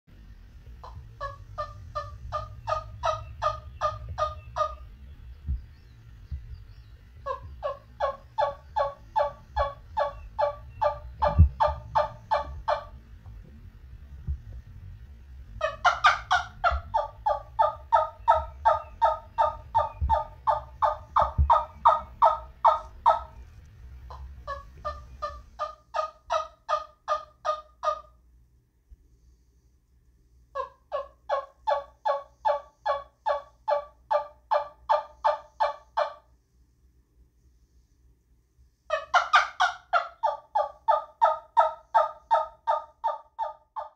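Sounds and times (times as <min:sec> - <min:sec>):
turkey yelper call: 0:00.8 - 0:04.9, 0:07.2 - 0:13.0, 0:15.6 - 0:23.4, 0:24.1 - 0:28.2, 0:30.6 - 0:36.3, 0:38.9 - 0:43.9.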